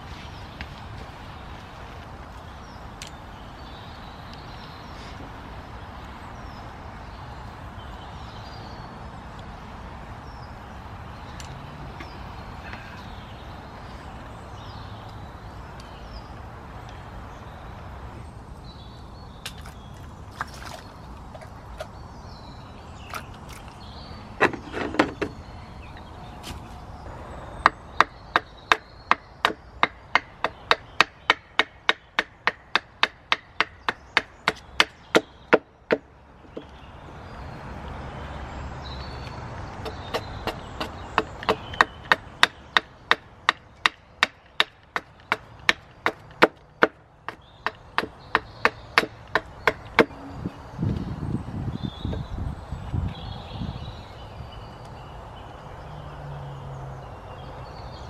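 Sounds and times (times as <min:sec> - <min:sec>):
wood being chopped: 0:24.4 - 0:25.4, 0:27.6 - 0:36.7, 0:39.8 - 0:50.2.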